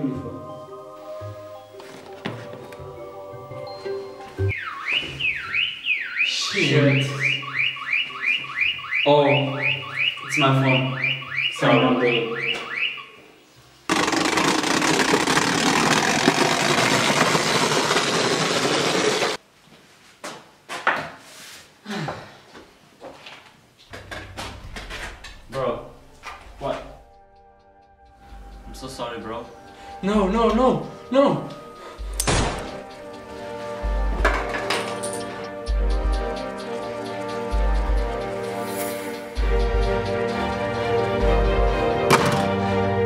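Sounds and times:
electronic alarm siren whooping: 4.5s - 13.3s.

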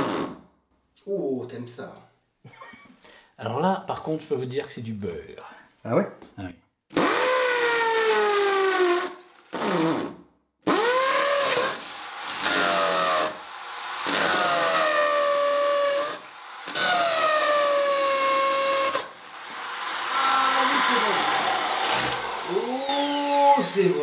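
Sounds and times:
electric drill boring into brick: 0.0s - 0.4s, 6.9s - 24.0s.

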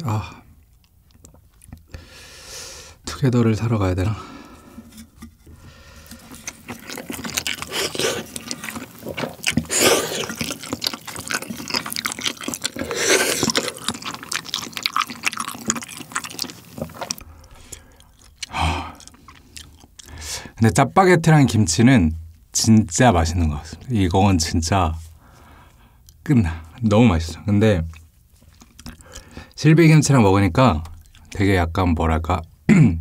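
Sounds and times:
wet chewing of noodles: 0.5s - 2.5s, 4.4s - 20.6s, 27.9s - 29.6s, 30.8s - 31.4s
noodle slurps: 6.0s - 17.2s.

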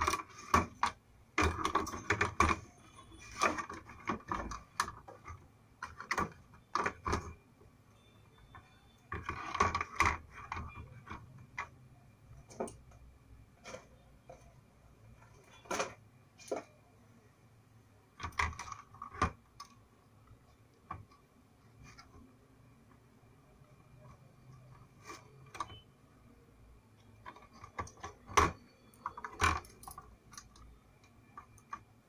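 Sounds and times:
handling clicks and knocks: 0.0s - 7.4s.

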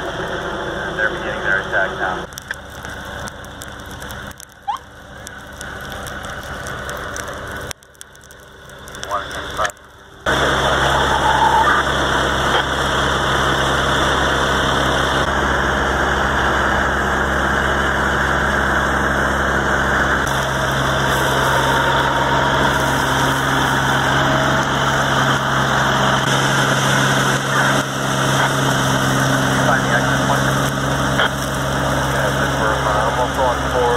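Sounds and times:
fire engine running: 0.0s - 33.9s.

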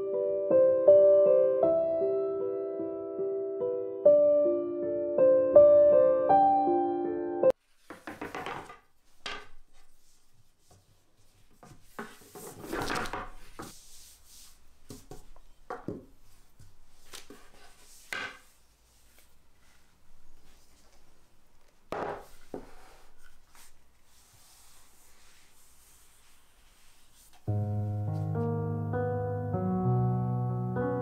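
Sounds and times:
rolling pin rubbing over dough: 22.2s - 27.5s.

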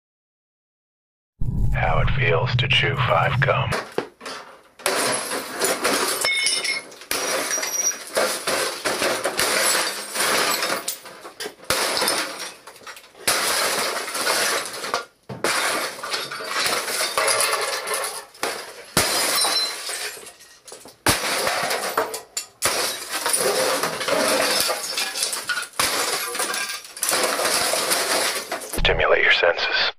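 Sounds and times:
glass shattering: 4.8s - 28.8s.

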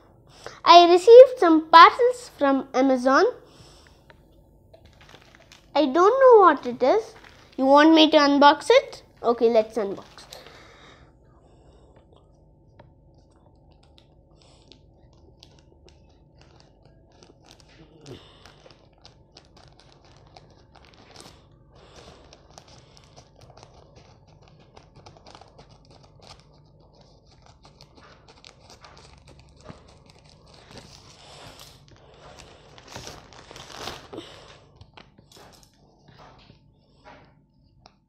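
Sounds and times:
plastic packaging crinkling: 4.7s - 8.2s, 13.5s - 35.8s.

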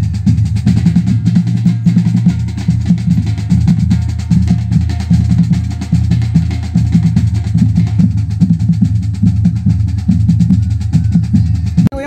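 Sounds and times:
drum band playing fast beat: 0.0s - 12.0s.

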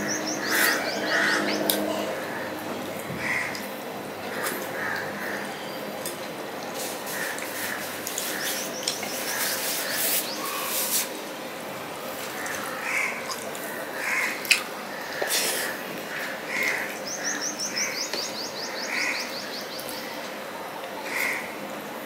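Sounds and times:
crows cawing: 0.3s - 3.7s, 4.3s - 5.6s, 7.1s - 10.7s, 12.3s - 18.0s, 18.6s - 20.2s, 21.0s - 21.6s.

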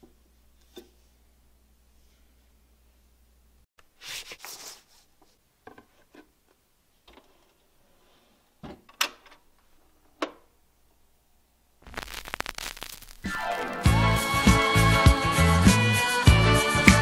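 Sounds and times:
vinyl surface crackle: 11.8s - 14.0s.

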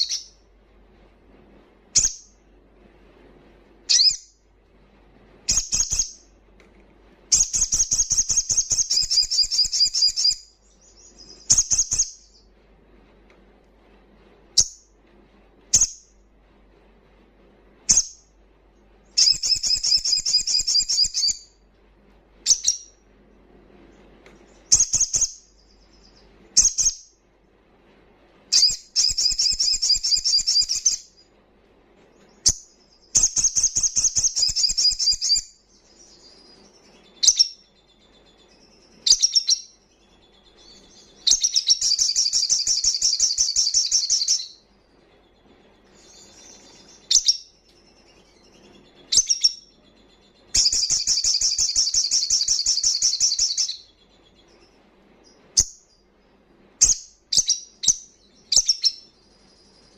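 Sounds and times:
bird trilled song: 0.0s - 0.5s, 1.9s - 2.4s, 3.9s - 4.4s, 5.5s - 6.3s, 7.3s - 12.5s, 14.5s - 15.0s, 15.7s - 16.2s, 17.9s - 18.3s, 19.1s - 21.6s, 22.4s - 23.0s, 24.4s - 27.2s, 28.5s - 31.4s, 32.1s - 59.9s.

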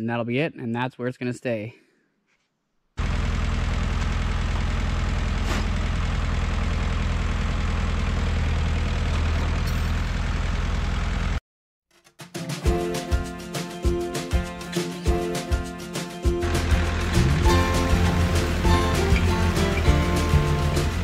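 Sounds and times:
tractor engine running: 3.0s - 11.4s, 16.3s - 21.0s
music: 12.0s - 21.0s.

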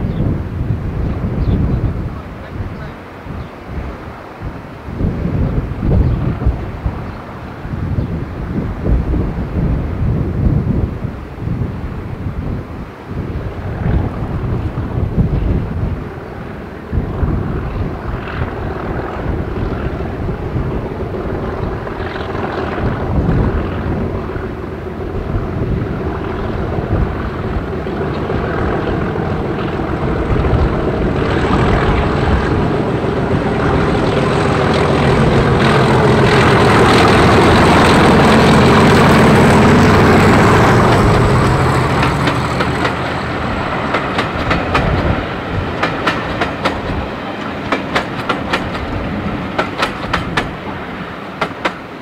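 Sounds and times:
diesel locomotive engine passing: 0.0s - 52.0s
wheels clacking over rail joints: 27.0s - 52.0s.

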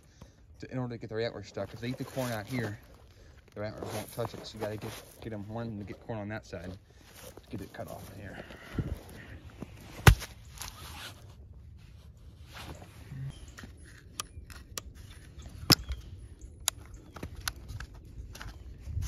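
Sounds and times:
footsteps in snow and leaves: 1.6s - 14.1s.

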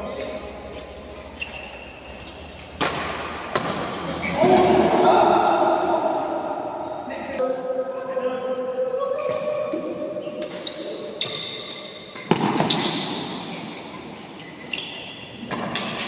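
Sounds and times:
sneakers squeaking on court: 0.3s - 2.9s, 10.2s - 15.8s
rackets striking shuttlecock: 12.1s - 13.4s.

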